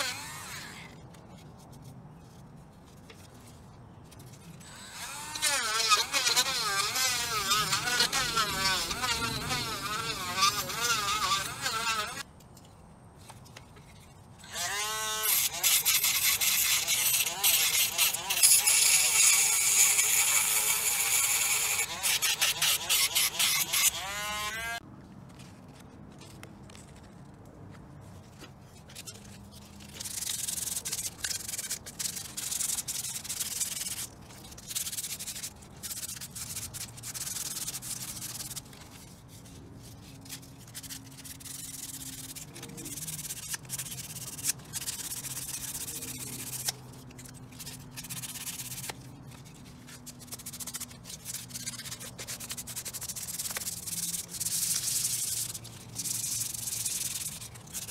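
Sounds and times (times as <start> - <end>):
rotary tool whine: 0.0 - 1.0, 4.6 - 12.2, 14.4 - 24.8
sandpaper scrubbing: 0.0 - 12.2, 14.8 - 25.8, 28.1 - 57.9.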